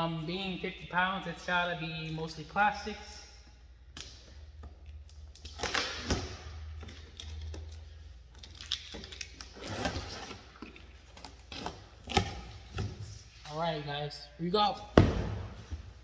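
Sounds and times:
packing tape being picked and slit: 3.9s - 13.0s.

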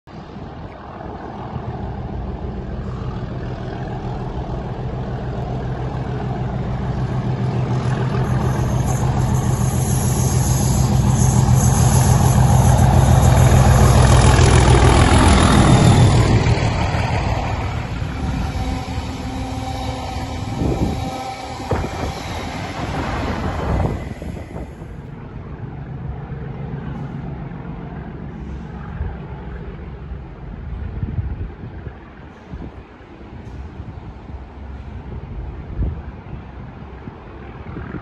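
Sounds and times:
diesel locomotive engine drone: 0.1s - 38.0s
train wheels rumbling on rails: 0.3s - 38.0s
high thin whine: 2.8s - 25.1s.

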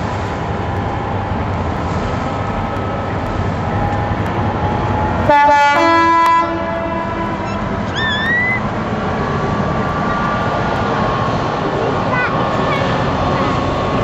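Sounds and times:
train rumbling: 0.0s - 14.0s
two-note train horn: 5.3s - 7.5s
rising bird call: 7.4s - 8.7s.

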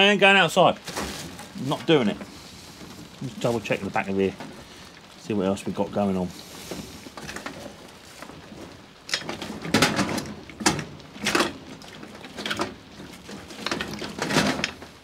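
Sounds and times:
plastic and metal parts rattling: 7.1s - 15.0s.

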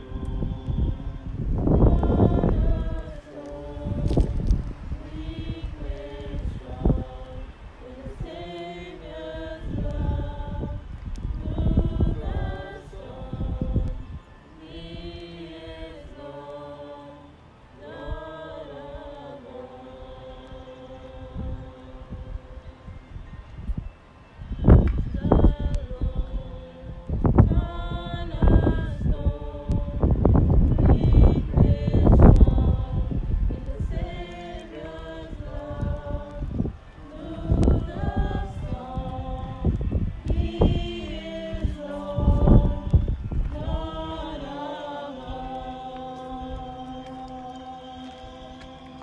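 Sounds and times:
group singing a slow hymn: 0.0s - 49.0s.

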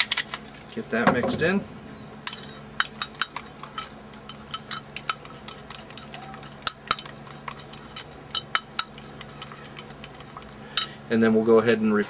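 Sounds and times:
utensil clinking against ceramic bowl: 2.3s - 11.0s.

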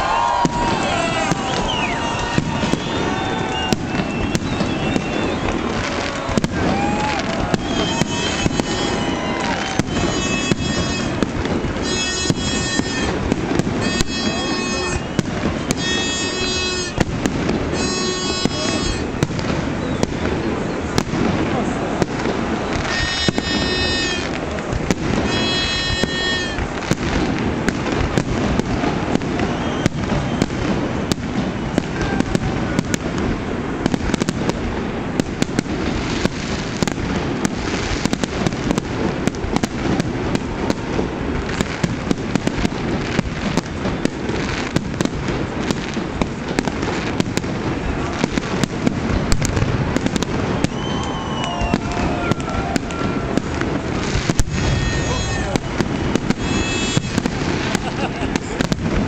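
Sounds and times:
fireworks bursting and crackling: 0.0s - 59.0s
shrill steady tones: 7.6s - 17.1s, 17.7s - 19.2s, 22.8s - 24.4s, 25.2s - 26.7s, 54.0s - 57.3s.

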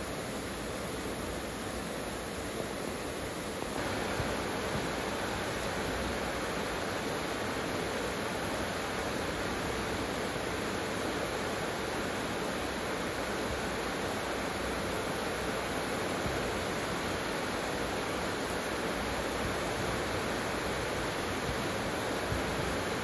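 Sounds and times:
heavy rain falling: 0.0s - 23.0s.

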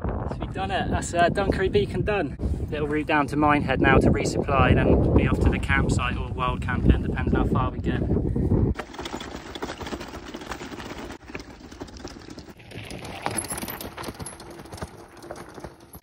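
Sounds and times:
wind hitting microphone: 0.0s - 8.8s
bike rattling over rough ground: 8.7s - 16.0s.

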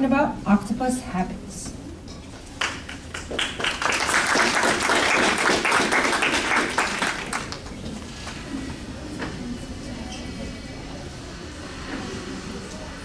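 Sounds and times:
audience applauding: 2.6s - 7.8s.

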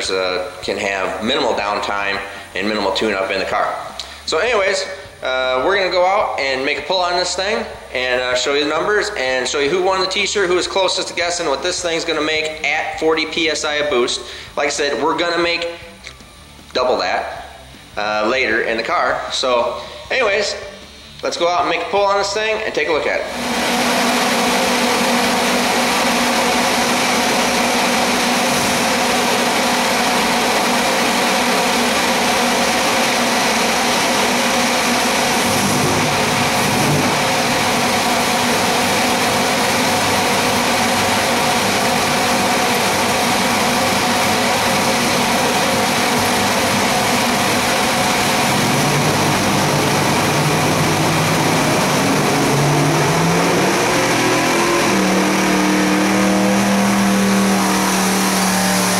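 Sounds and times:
engine running on dyno: 0.0s - 58.9s
engine revs climbing: 23.1s - 58.9s.

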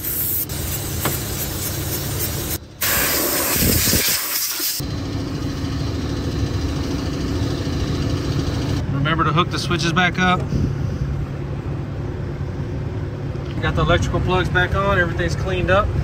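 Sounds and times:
aerosol spray hissing: 0.0s - 4.8s.

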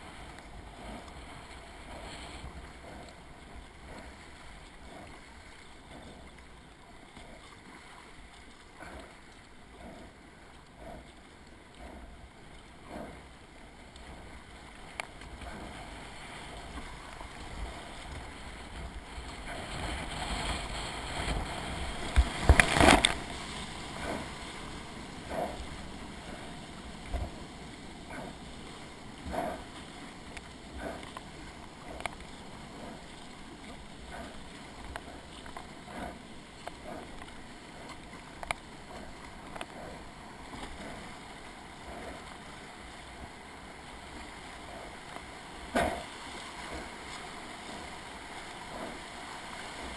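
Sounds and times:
rushing white water: 0.0s - 49.9s
paddle splashing into water: 19.2s - 24.6s.

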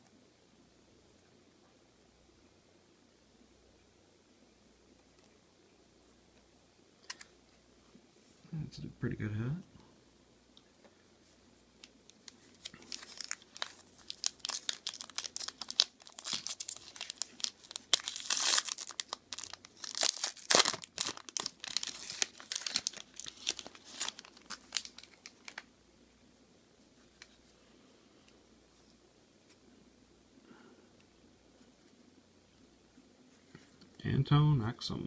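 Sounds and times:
foil wrapper crinkling and tearing: 12.1s - 25.7s.

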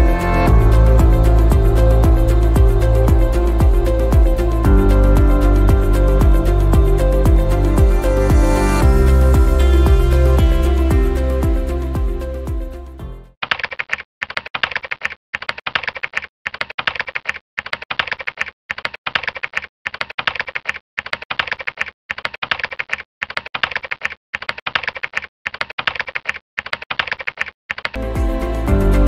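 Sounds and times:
computer keyboard typing: 13.4s - 28.0s.

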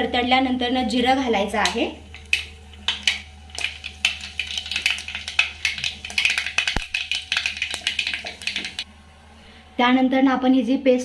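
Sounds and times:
seeds popping in hot oil: 1.4s - 8.8s.

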